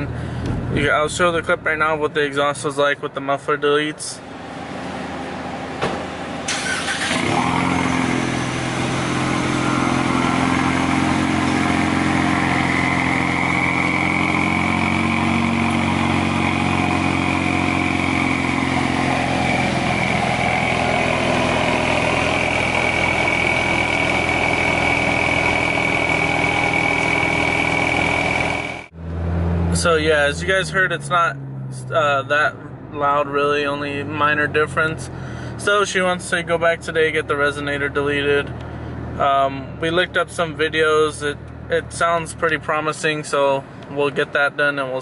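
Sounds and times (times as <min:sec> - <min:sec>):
car engine starting and idling: 0:00.0 - 0:45.0
thin high whine: 0:09.3 - 0:28.9.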